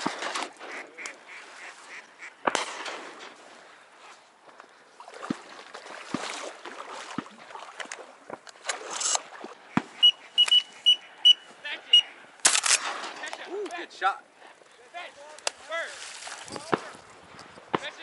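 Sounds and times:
ducks quacking: 0:00.1 - 0:02.6, 0:09.5 - 0:12.2.

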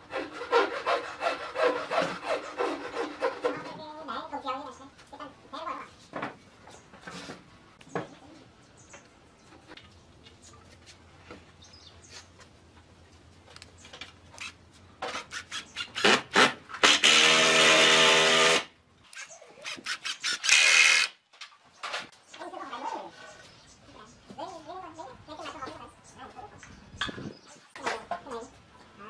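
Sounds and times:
power tool working wood: 0:16.8 - 0:18.7.

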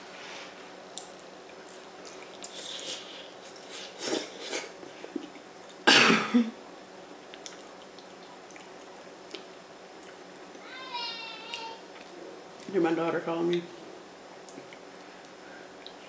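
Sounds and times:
woman coughing: 0:05.8 - 0:06.6.

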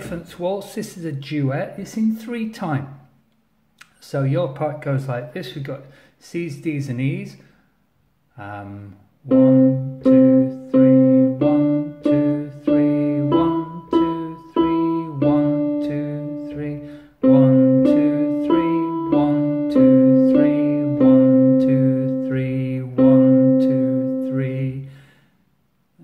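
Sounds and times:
electronic keyboard melody: 0:09.3 - 0:24.8.

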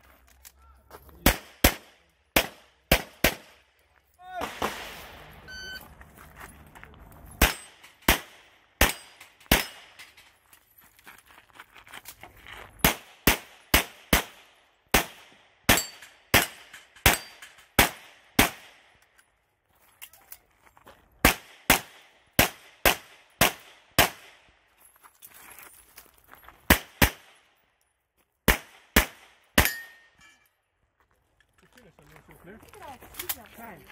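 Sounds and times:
pistol shots: 0:01.2 - 0:03.6, 0:07.4 - 0:10.0, 0:12.8 - 0:18.8, 0:21.2 - 0:24.4, 0:28.5 - 0:29.9.

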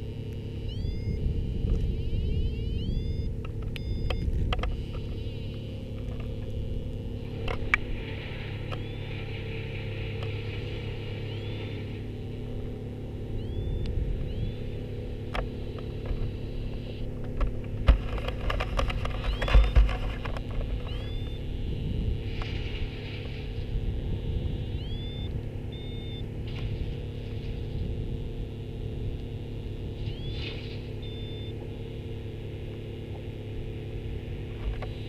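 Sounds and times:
low motor hum: 0:00.0 - 0:35.0.

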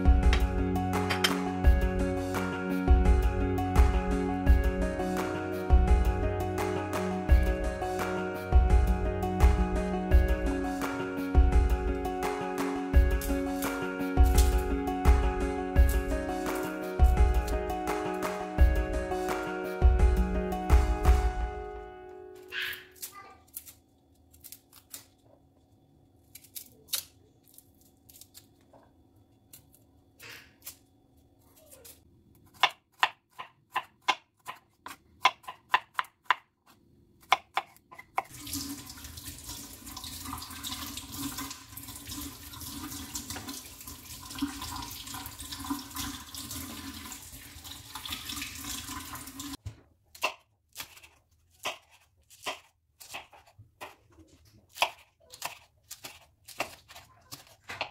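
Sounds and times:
knife slicing on board: 0:50.2 - 0:54.0, 0:54.7 - 0:57.9.

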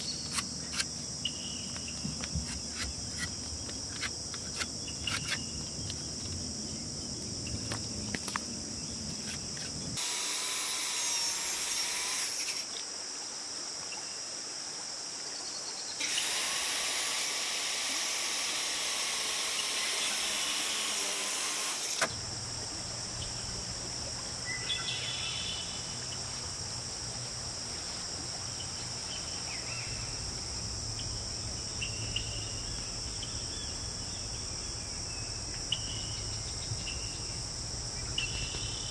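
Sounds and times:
crickets chirping: 0:00.0 - 0:38.9
circular saw cutting wood: 0:10.0 - 0:12.7, 0:16.0 - 0:22.2.

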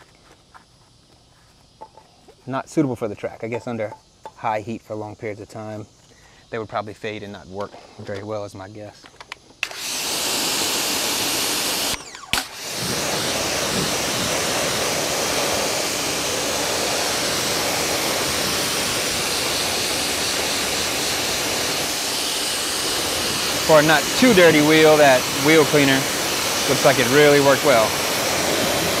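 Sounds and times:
pressure washer spray hissing: 0:09.6 - 0:29.0
spray gun trigger click: 0:11.8 - 0:13.0.

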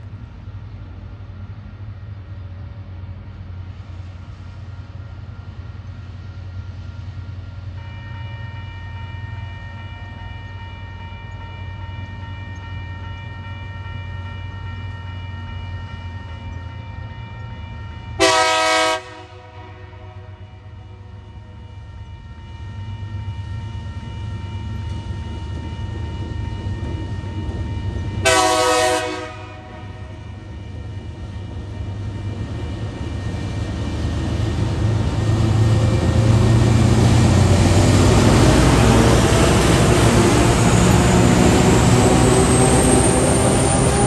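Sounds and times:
diesel locomotive rumbling: 0:00.0 - 0:44.0
crossing warning bell ringing: 0:05.0 - 0:44.0
locomotive horn blast: 0:07.8 - 0:11.0, 0:16.8 - 0:21.0, 0:27.9 - 0:31.4.

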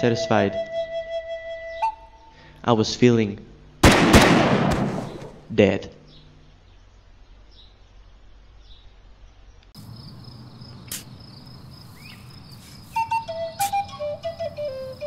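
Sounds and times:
flute melody: 0:00.0 - 0:02.4, 0:12.8 - 0:15.0
insects chirring: 0:05.0 - 0:15.0.

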